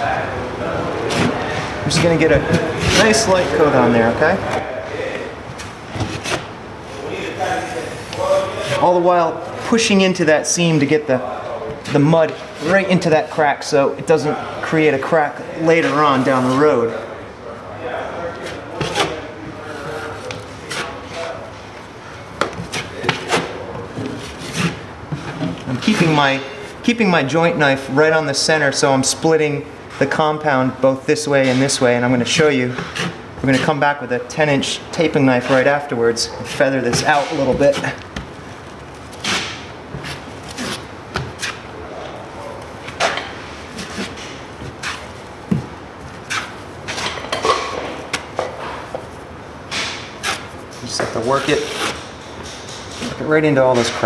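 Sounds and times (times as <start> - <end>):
taping knife scraping on wall: 22.6 - 26.5, 32.3 - 33.8, 39.0 - 41.6, 51.2 - 53.2
knife scraped against mud pan: 32.7 - 33.8.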